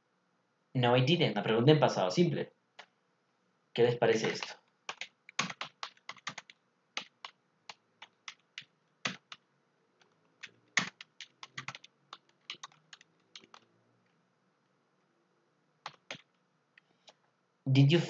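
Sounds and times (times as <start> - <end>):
keyboard keys clicking: 4.1 - 9.4, 10.0 - 13.7, 15.8 - 16.4.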